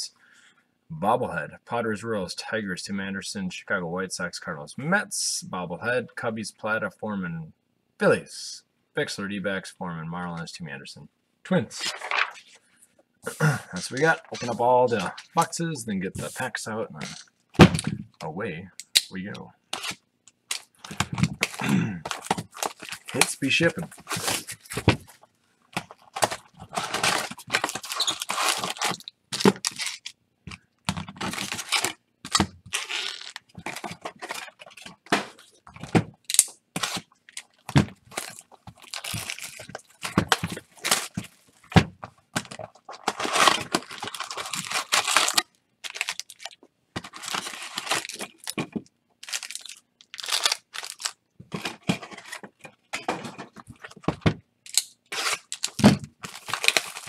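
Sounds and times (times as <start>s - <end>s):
wrapper crinkling: 19.8s - 25.2s, 25.9s - 30.1s, 31.2s - 35.6s, 36.3s - 41.6s, 42.4s - 48.6s, 49.2s - 51.2s, 54.7s - 57.0s
cardboard tearing: 26.1s - 30.0s, 42.9s - 46.5s, 55.1s - 57.0s.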